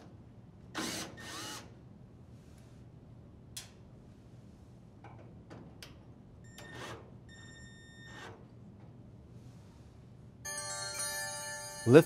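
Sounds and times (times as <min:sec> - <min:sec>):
chime: 0:10.5 - 0:12.0.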